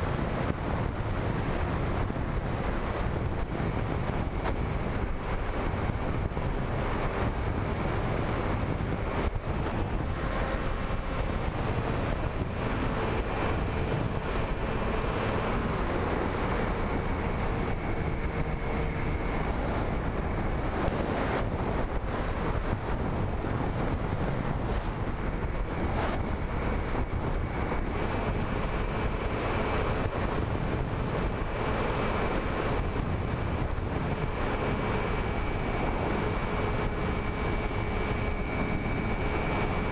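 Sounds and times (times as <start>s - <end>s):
motor and propeller whine: 0.0s - 39.9s
wind rushing over microphone: 0.0s - 39.9s.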